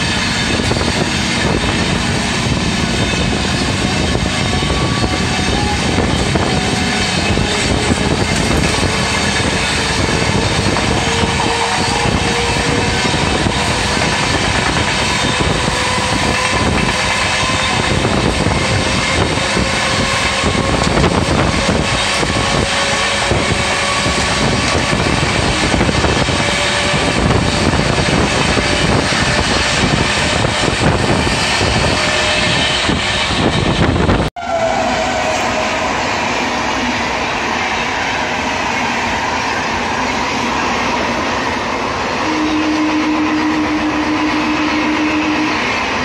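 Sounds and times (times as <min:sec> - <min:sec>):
rushing air: 0:00.0 - 0:46.0
train passing platform: 0:00.0 - 0:46.0
train wheels rattling on rails: 0:00.0 - 0:46.0.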